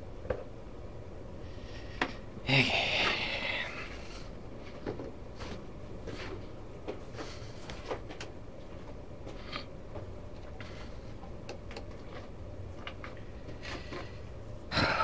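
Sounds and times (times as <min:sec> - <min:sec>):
steady low hum: 0:00.0 - 0:15.0
faint clicks and taps: 0:07.7 - 0:14.1.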